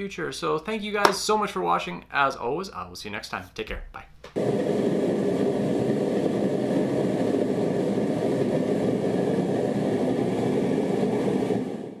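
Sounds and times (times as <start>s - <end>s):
propane burner roaring: 4.4s - 12.0s.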